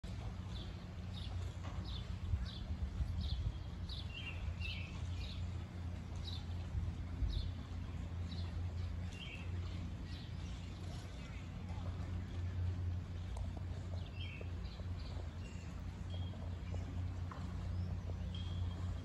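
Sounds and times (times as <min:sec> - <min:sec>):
steady low rumble: 0:00.0 - 0:19.0
songbird chirping: 0:00.1 - 0:19.0.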